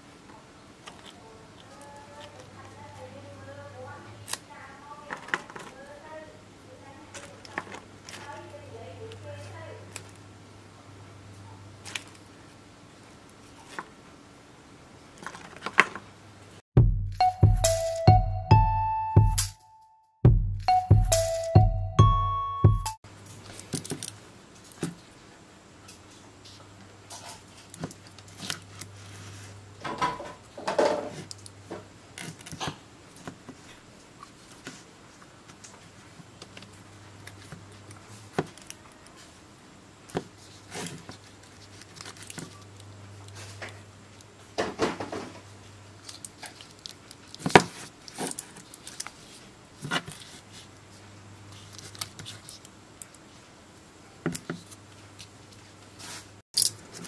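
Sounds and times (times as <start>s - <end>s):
battery pouches crinkling: 46.0s - 49.4s.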